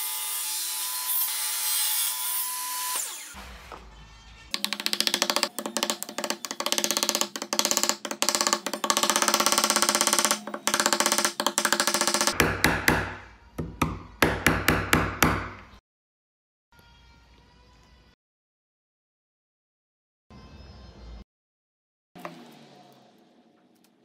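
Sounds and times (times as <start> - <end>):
wood rattling on wood: 4.6 - 12.4
wooden knocks: 4.6 - 15.6.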